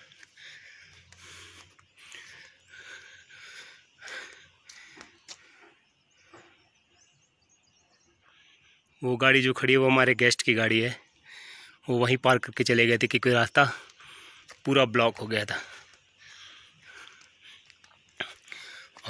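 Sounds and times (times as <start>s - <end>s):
footsteps crunching on gravel: 0.0s - 2.4s
faint bird chirps: 0.0s - 19.0s.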